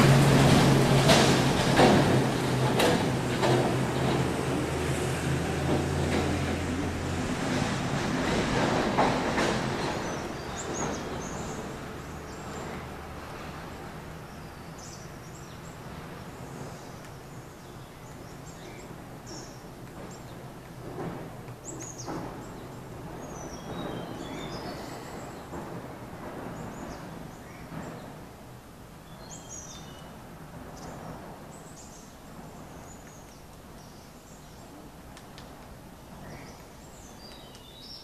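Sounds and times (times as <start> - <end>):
sharp knocks: 0.0 - 4.5.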